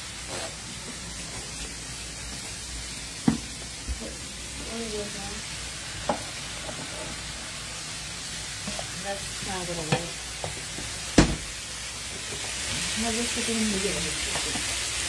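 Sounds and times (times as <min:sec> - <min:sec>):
shrimp sizzling in a pan: 0:00.0 - 0:15.0
utensil clacking against a pan: 0:09.8 - 0:10.6, 0:14.2 - 0:14.7.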